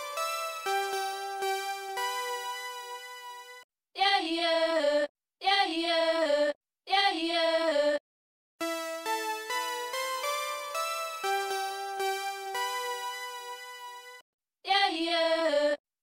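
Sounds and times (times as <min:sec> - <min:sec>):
synth melody: 0:00.0 - 0:03.6, 0:08.6 - 0:14.2.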